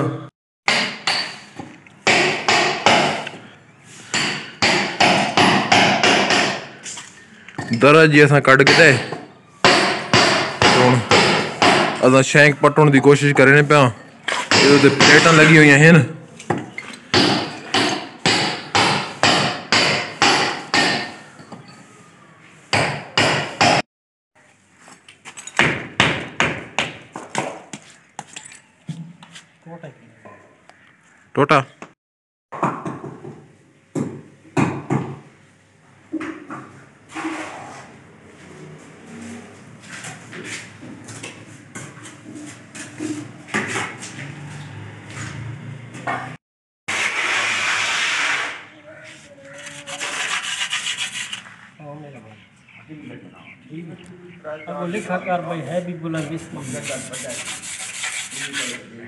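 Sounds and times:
hammer striking a chisel into concrete: 0:00.7 - 0:01.5, 0:17.1 - 0:21.2.

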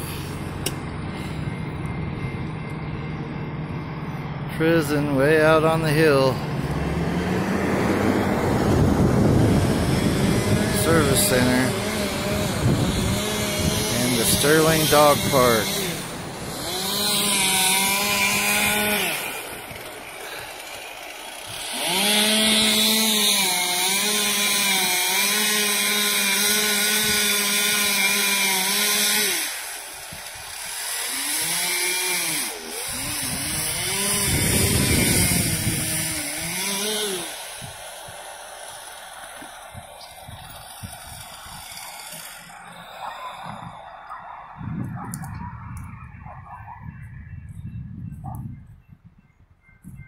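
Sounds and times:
chainsaw revving: 0:04.6 - 0:44.1.

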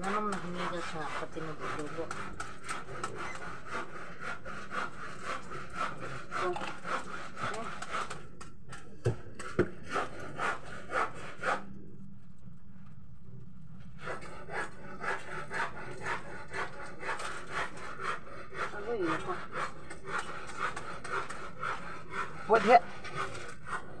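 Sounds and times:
comb rasping through hair: 0:00.0 - 0:08.2, 0:14.1 - 0:23.9.

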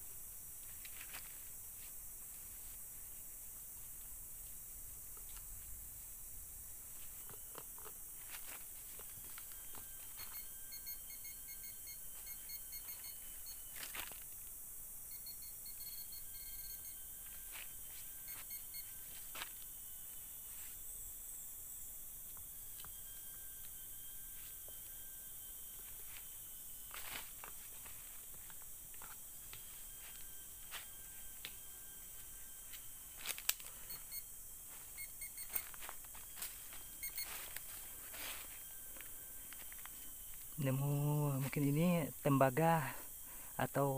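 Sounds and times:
rustling of leaves and earth: 0:00.0 - 0:43.9
metal detector beeps: 0:08.9 - 0:14.2, 0:15.1 - 0:19.6, 0:22.4 - 0:42.1.

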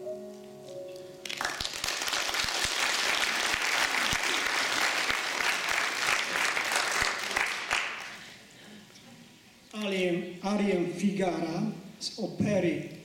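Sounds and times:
audience applauding: 0:01.2 - 0:08.2.

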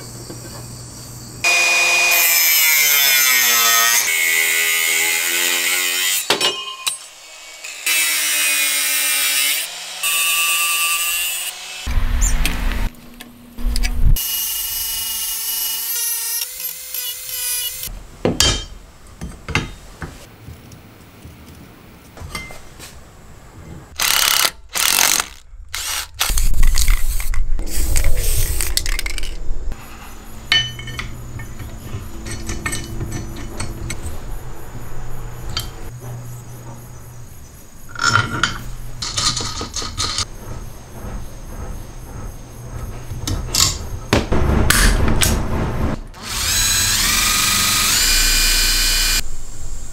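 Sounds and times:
angle grinder cutting steel: 0:01.4 - 0:11.9, 0:14.2 - 0:17.9, 0:46.2 - 0:49.2.

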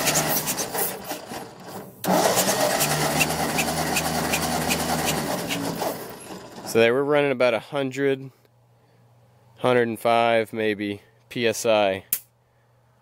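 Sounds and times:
tractor engine cranking: 0:00.0 - 0:06.9.

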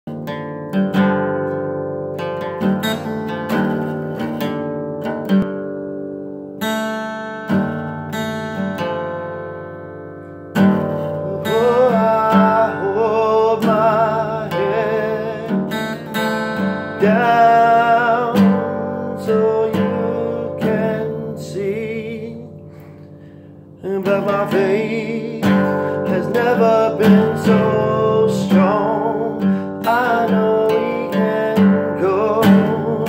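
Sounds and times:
plucked string instrument: 0:00.1 - 0:33.0
wavering melody with vibrato: 0:06.6 - 0:33.0.

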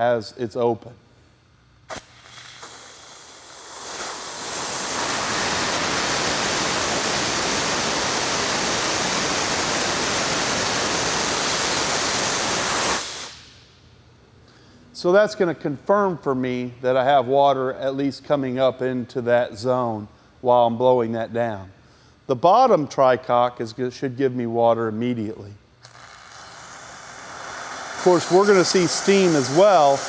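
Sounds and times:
steam hissing from valve: 0:01.9 - 0:13.6, 0:25.8 - 0:30.0.

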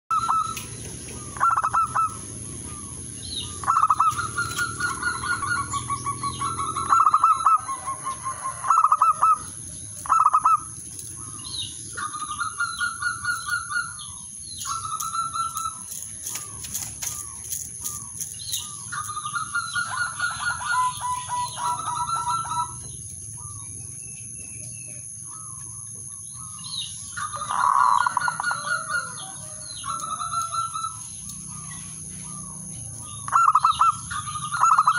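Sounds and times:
dove cooing: 0:00.1 - 0:23.7, 0:26.4 - 0:34.9
wings fluttering: 0:03.6 - 0:13.8, 0:14.6 - 0:22.7.

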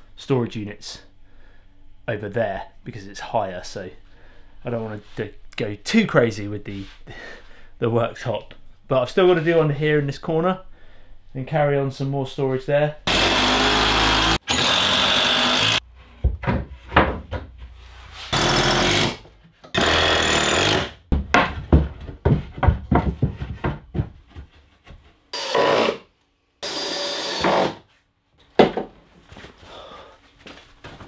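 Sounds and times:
cordless drill driving screws: 0:13.1 - 0:15.8, 0:26.6 - 0:27.8
wood knocking and clattering: 0:16.1 - 0:17.7, 0:21.1 - 0:25.1, 0:28.5 - 0:29.0.

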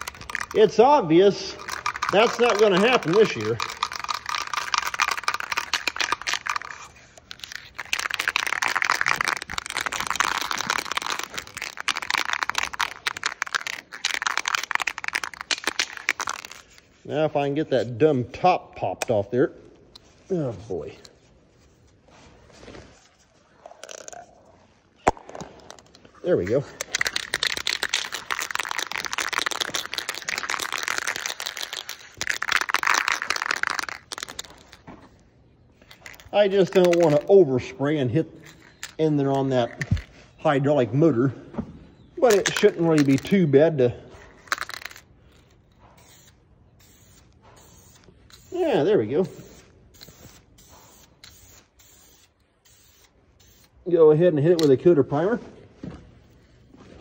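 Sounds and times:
spray can mixing ball rattling: 0:00.0 - 0:17.0, 0:23.6 - 0:24.4, 0:25.0 - 0:34.9, 0:35.8 - 0:37.5, 0:38.4 - 0:40.2, 0:42.2 - 0:53.8.

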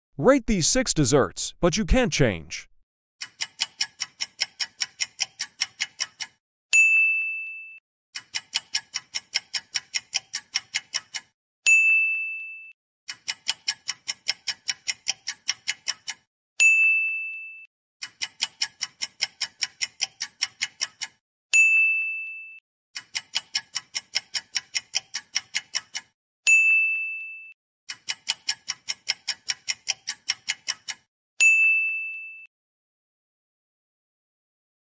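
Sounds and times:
rapid ticking: 0:03.2 - 0:06.4, 0:08.2 - 0:11.3, 0:13.1 - 0:16.3, 0:18.0 - 0:21.2, 0:23.0 - 0:26.1, 0:27.9 - 0:31.1
bright bell-like ding: 0:06.8 - 0:07.8, 0:11.7 - 0:12.7, 0:16.6 - 0:17.6, 0:21.6 - 0:22.6, 0:26.5 - 0:27.5, 0:31.4 - 0:32.5.

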